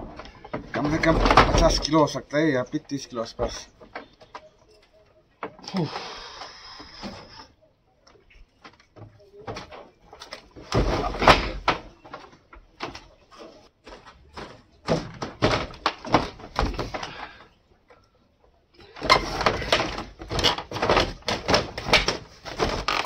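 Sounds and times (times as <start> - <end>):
heavy slab thudding on bamboo floor: 0.0 - 1.9, 10.6 - 12.0, 13.8 - 17.2
bamboo slats clattering: 0.0 - 2.2, 8.6 - 17.6, 18.8 - 23.0.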